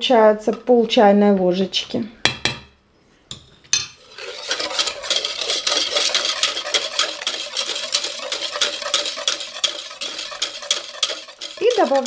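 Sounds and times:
whisk clinking and scraping pot: 3.7 - 12.0
liquid sloshing: 4.0 - 12.0.

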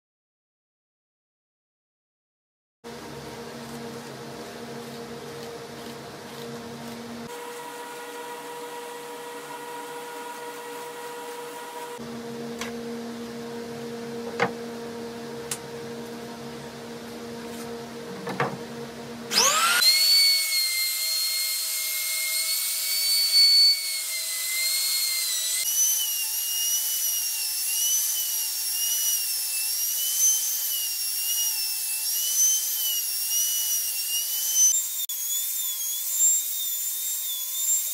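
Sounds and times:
steady low hum: 2.9 - 7.6, 12.0 - 19.3
router whining while cutting wood: 3.6 - 12.0, 19.3 - 37.9.

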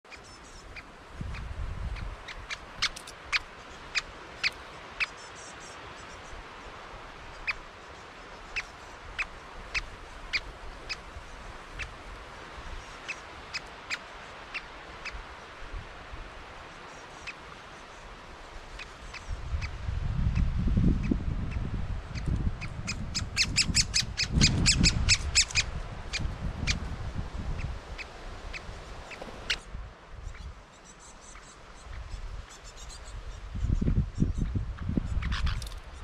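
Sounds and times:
woodpecker calls: 0.1 - 5.5, 20.4 - 26.8.

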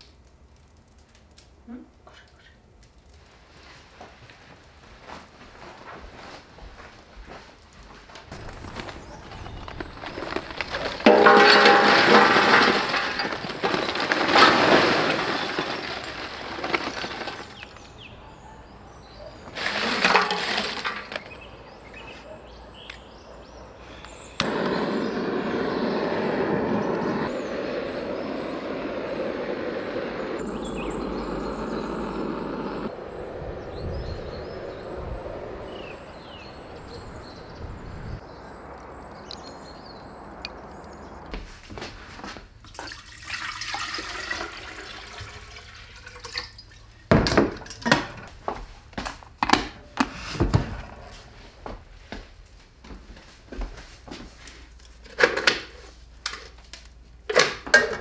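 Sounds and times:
running water splashing: 42.7 - 47.0.

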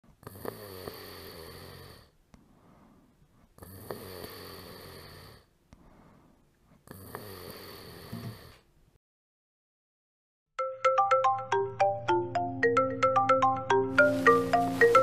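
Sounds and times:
person snoring: 0.2 - 2.2, 3.6 - 5.5, 6.8 - 8.6.

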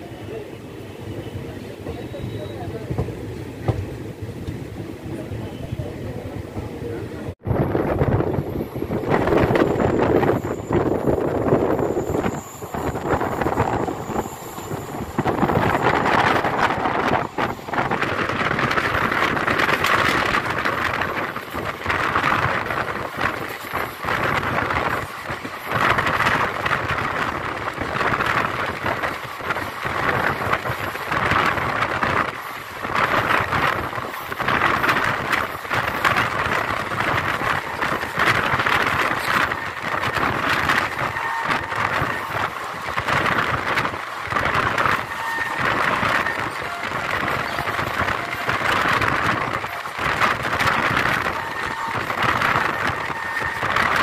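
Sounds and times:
train wheels rumbling on rails: 0.0 - 54.0
wind buffeting microphone: 5.9 - 54.0.

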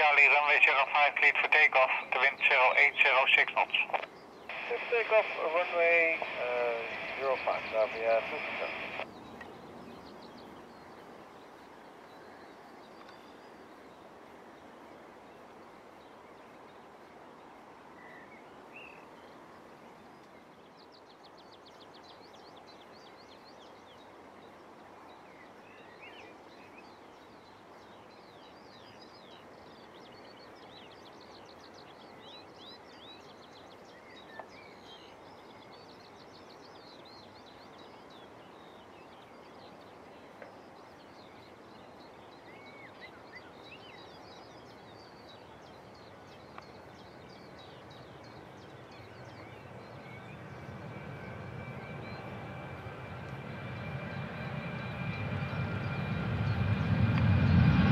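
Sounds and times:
small birds singing: 0.0 - 16.8, 17.4 - 57.9
faint outdoor hum: 0.0 - 57.9
jet engines spooling up: 50.0 - 57.9.

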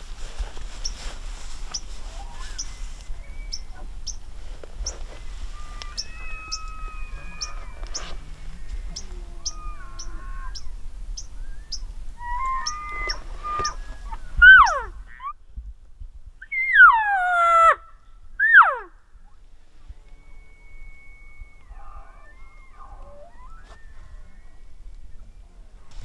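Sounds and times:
elk whistling bugle: 5.3 - 10.6, 11.4 - 15.3, 18.4 - 18.9, 19.9 - 25.6
lower elk calls: 5.4 - 10.7, 11.4 - 15.4, 16.4 - 25.8.

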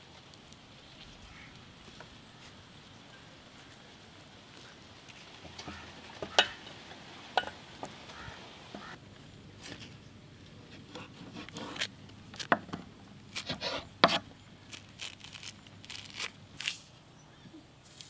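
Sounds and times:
citrus peel tearing and crackling: 11.4 - 17.0.

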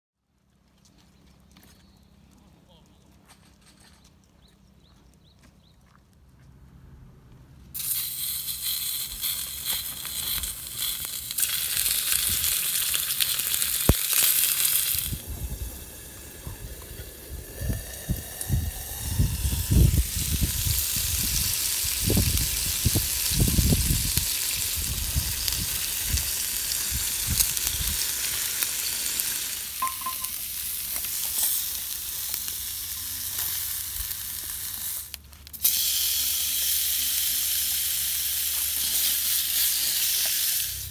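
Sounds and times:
meat sizzling in a skillet: 7.8 - 40.9.

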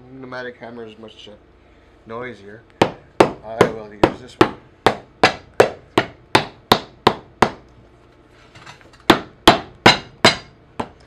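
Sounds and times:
hammer striking rubber sole: 2.8 - 7.6, 9.1 - 11.0.

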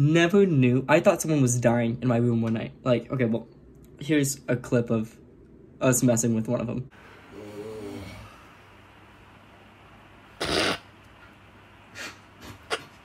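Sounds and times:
man snoring: 7.3 - 8.5.

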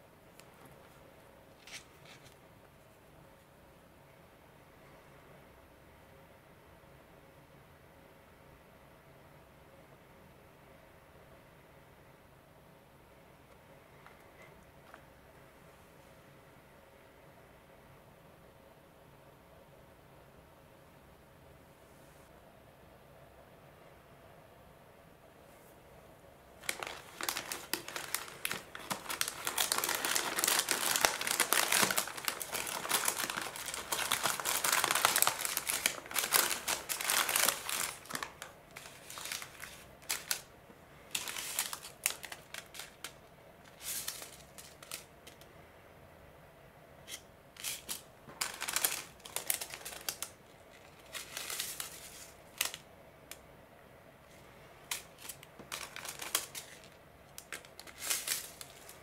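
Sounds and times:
packets rustling: 26.6 - 40.5, 41.1 - 45.1, 47.6 - 52.9, 54.8 - 59.0
plastic sachets crinkling: 26.6 - 45.4, 47.6 - 52.9, 54.8 - 59.0.

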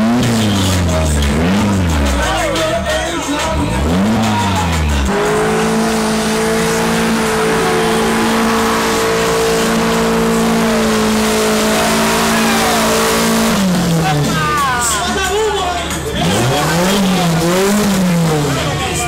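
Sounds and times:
car engine at high revs: 0.0 - 2.8, 3.4 - 14.7, 16.0 - 19.0
spinning tires hissing: 3.6 - 14.2.

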